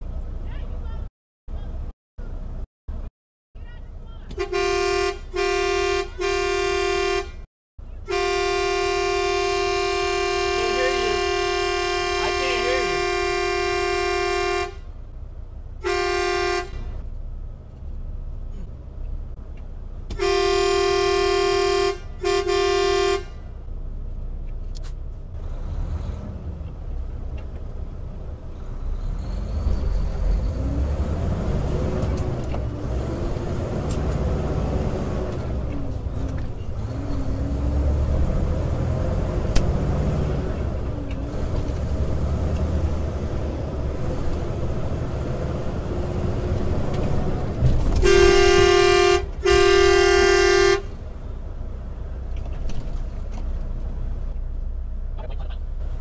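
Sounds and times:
truck engine and road noise: 0.0 - 56.0
vehicle horn honking: 4.3 - 14.9, 15.8 - 16.9, 20.1 - 23.5, 48.0 - 51.0.

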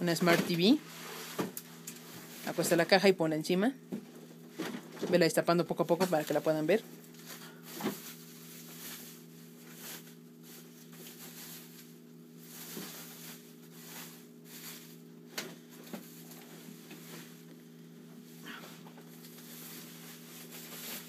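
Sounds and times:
steady low hum: 0.0 - 21.0
plastic bag rustling: 5.9 - 21.0.

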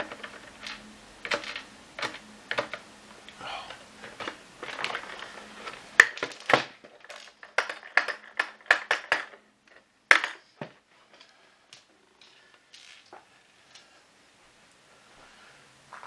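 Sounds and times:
plastic parts knocking and clicking: 0.0 - 2.8, 4.0 - 13.1.

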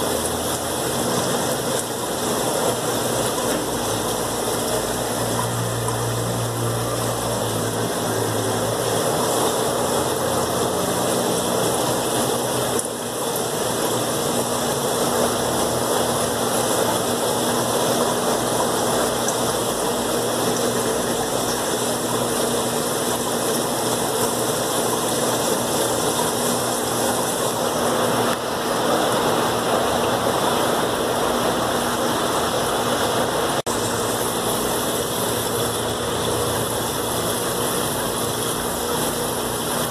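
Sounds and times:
aquarium air pumps humming: 0.0 - 39.9
bubbling air-lift filters: 0.0 - 39.9.

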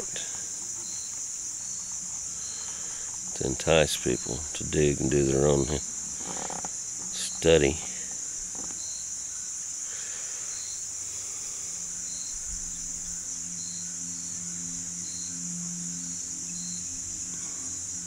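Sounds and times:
faint low hum: 0.0 - 18.0
high-pitched insect chorus: 0.0 - 18.0
short insect chirps: 0.0 - 18.0.

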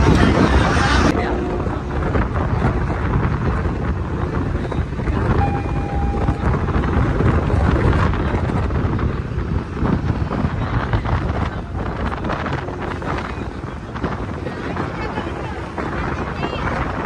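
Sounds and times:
boat engine: 0.0 - 17.0
water noise: 0.0 - 17.0
wind buffeting microphone: 0.0 - 17.0
steady tone: 5.2 - 7.6.

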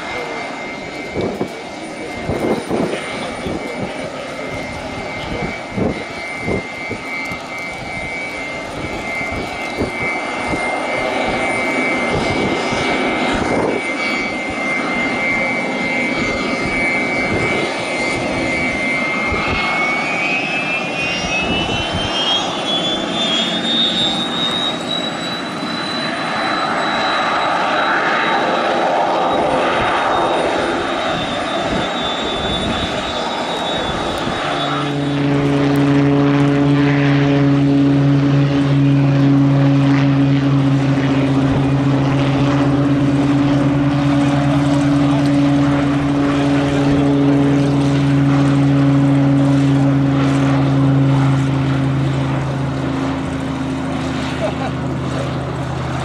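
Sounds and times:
low propeller hum: 0.0 - 56.0
turboprop engine whine: 0.0 - 56.0.

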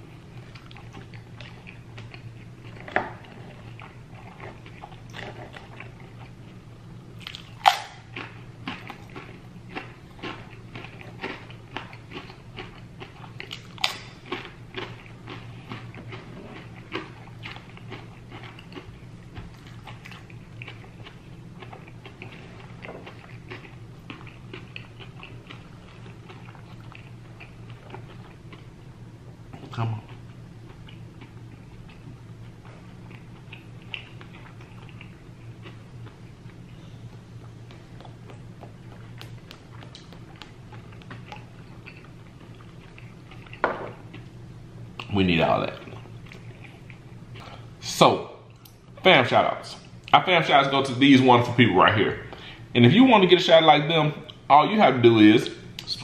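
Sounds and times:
steady low hum: 0.0 - 56.0
crunchy chip chewing: 7.2 - 28.6.

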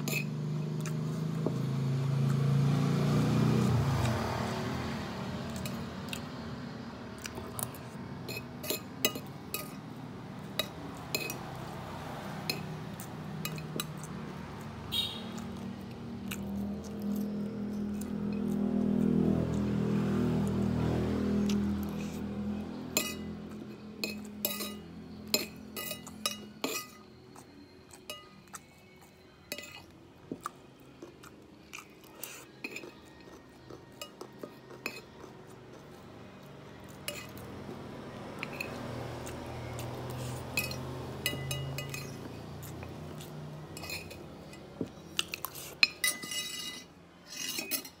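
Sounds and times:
spoon clinking on ceramic plate: 22.9 - 23.3, 24.0 - 27.1, 29.5 - 29.9, 40.6 - 42.3, 43.8 - 44.7, 45.8 - 48.0.

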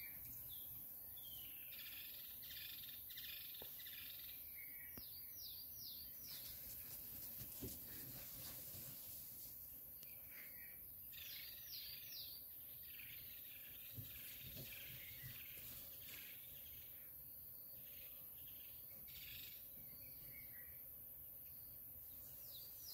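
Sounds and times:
birds chirping: 0.0 - 8.4, 9.7 - 22.9.

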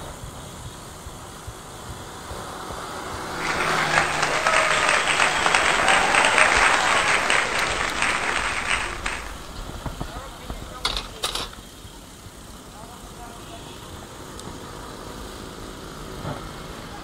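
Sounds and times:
road noise: 0.6 - 17.0
applause: 3.3 - 10.2.

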